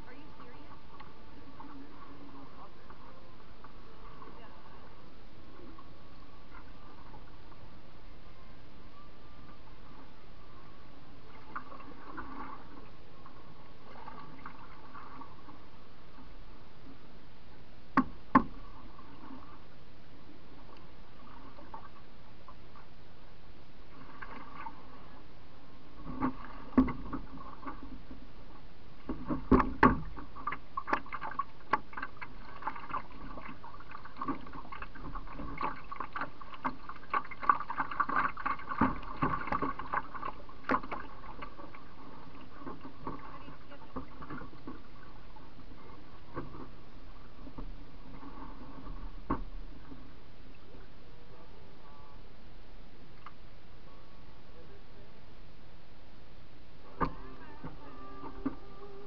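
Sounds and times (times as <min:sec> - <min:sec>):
water splashing against hull: 0:11.2 - 0:17.0, 0:17.9 - 0:19.8, 0:20.5 - 0:23.0, 0:23.8 - 0:50.9
knocks against hull: 0:18.0 - 0:18.6, 0:29.1 - 0:31.2.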